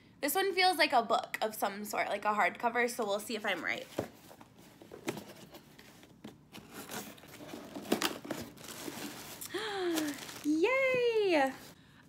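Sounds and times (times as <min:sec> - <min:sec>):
cardboard packaging tearing: 0:06.5 - 0:10.7.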